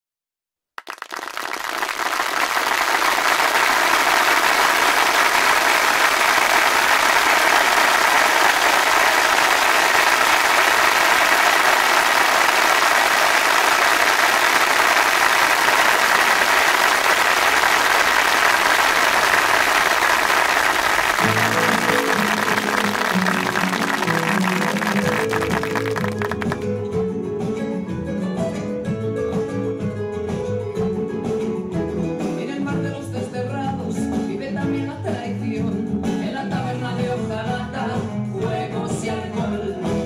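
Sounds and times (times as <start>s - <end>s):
audience applauding: 0.8s - 26.7s.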